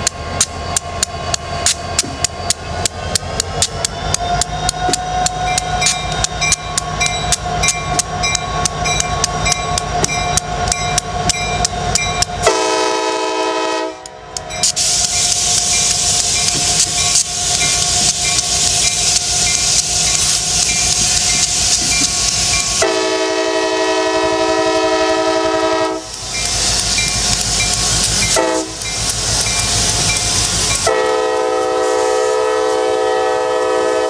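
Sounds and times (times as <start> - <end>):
diesel locomotive engines: 0.0 - 34.0
locomotive bell ringing: 0.4 - 12.5, 14.4 - 23.0
train horn blast: 12.4 - 14.2, 22.8 - 26.2, 28.3 - 28.8, 30.8 - 34.0
loud hiss: 14.6 - 34.0.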